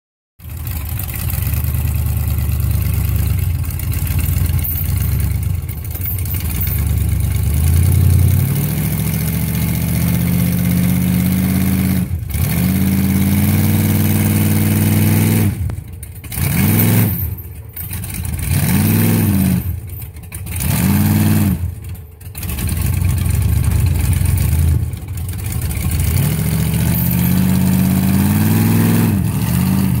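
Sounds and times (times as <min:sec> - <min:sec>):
truck engine revving hard: 0:06.8 - 0:17.4, 0:18.2 - 0:19.8, 0:20.5 - 0:21.8, 0:22.4 - 0:30.0.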